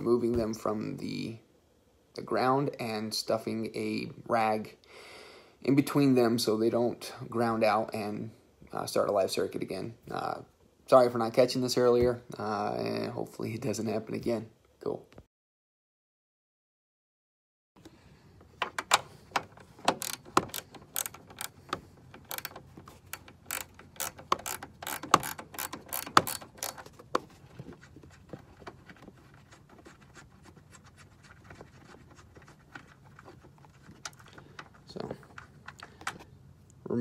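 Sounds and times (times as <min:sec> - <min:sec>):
wrench ratchet clicking: 0:19.9 - 0:27.1.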